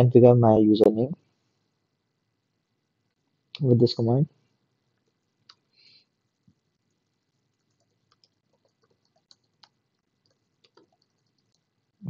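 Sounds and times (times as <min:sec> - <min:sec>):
soft hiss: 0:00.4 - 0:12.0
keyboard typing: 0:06.8 - 0:11.9.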